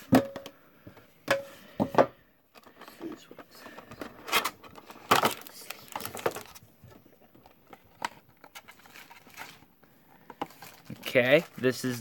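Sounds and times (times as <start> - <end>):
plastic crackling and rustling: 2.5 - 12.0.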